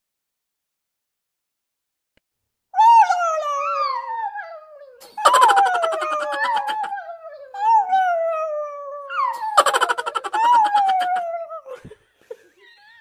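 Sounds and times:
dog howling: 2.8s - 11.7s.

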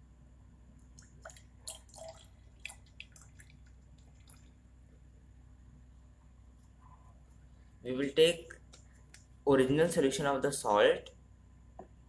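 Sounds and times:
liquid dripping into test tube: 0.8s - 4.8s.

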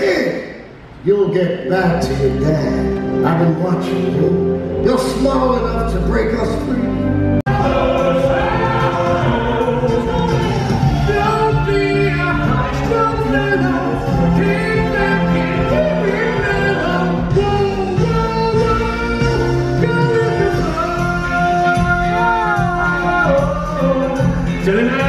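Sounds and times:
instrumental accompaniment: 2.0s - 25.0s
voices singing together: 7.5s - 25.0s.

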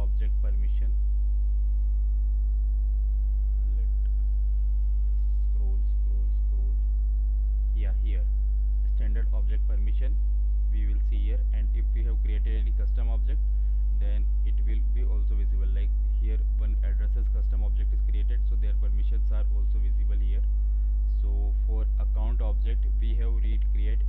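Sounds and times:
mains hum: 0.0s - 24.0s
faint indistinct voice: 5.1s - 6.8s, 7.8s - 8.3s.

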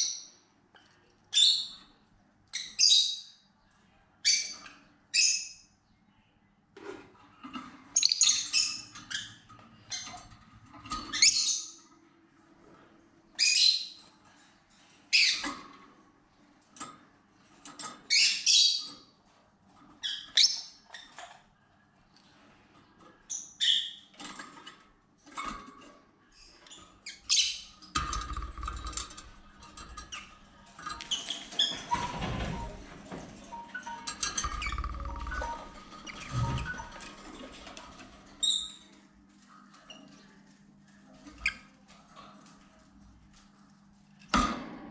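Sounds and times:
lovebirds chirping and squawking: 7.9s - 10.2s, 11.0s - 11.8s, 26.4s - 27.8s, 33.5s - 37.7s.

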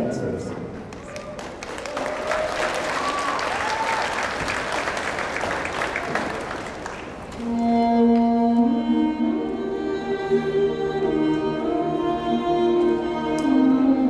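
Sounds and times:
audience applauding: 0.9s - 7.5s
person whooping: 2.0s - 4.2s
slow music with held notes: 7.4s - 14.0s.

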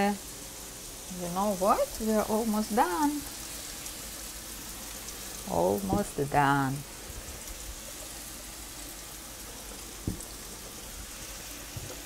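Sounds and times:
mushrooms sizzling in frying pan: 0.0s - 12.0s
light knock: 10.0s - 10.3s.

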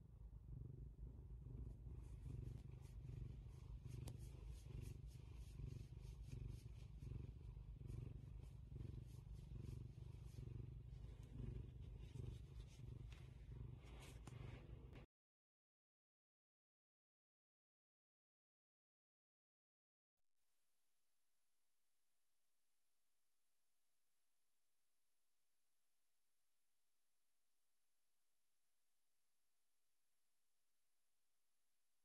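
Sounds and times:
kitten purring: 0.0s - 15.1s
faint crackles: 1.4s - 15.1s.

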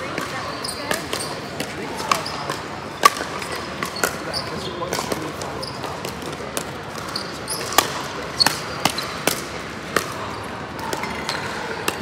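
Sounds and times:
paddles striking pickleball: 0.0s - 12.0s.

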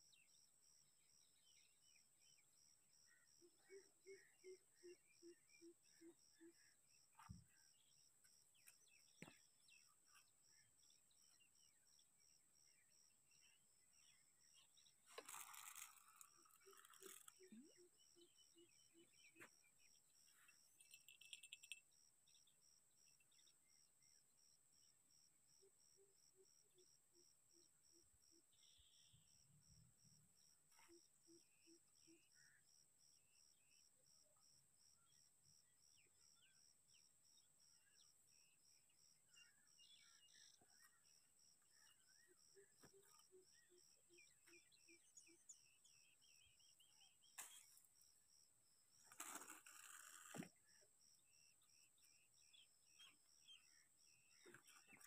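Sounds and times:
insects chirping: 5.3s - 32.4s.

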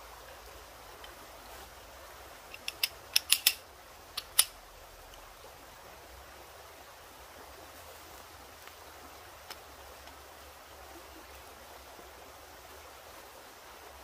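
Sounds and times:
creek rushing: 0.0s - 14.0s
camp stool clicks: 2.5s - 3.6s, 4.2s - 4.6s.

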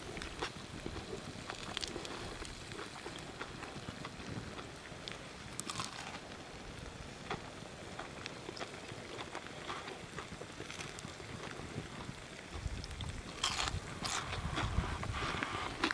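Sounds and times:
campfire crackling: 0.0s - 15.9s.

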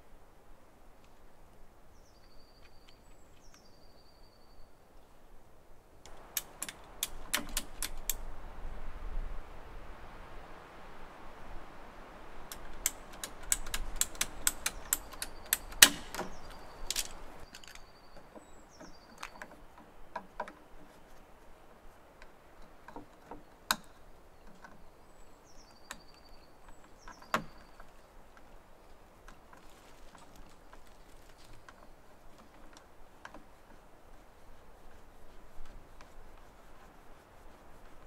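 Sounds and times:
plastic fittings clicking and knocking: 6.1s - 8.2s, 12.5s - 18.5s, 19.1s - 20.6s
bird calling with trill: 12.9s - 20.2s, 23.3s - 28.1s.

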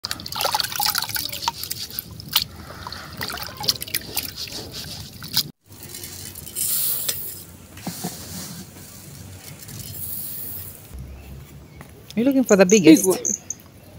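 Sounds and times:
water sloshing and splashing: 0.0s - 5.6s.

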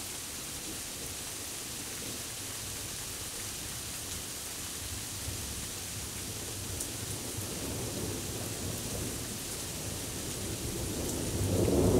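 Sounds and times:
steady rain: 0.0s - 11.9s
thunder rumbling: 10.4s - 11.9s.

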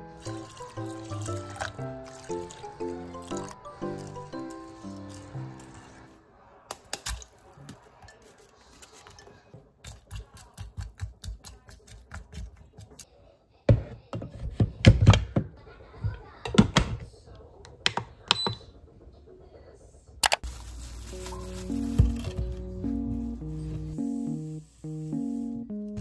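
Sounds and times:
wooden spatula stirring: 0.0s - 6.2s.

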